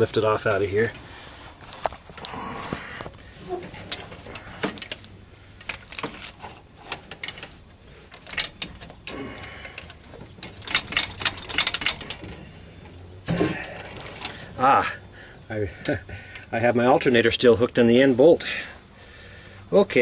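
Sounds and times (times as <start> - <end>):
rattling clicks: 1.7 - 14.6.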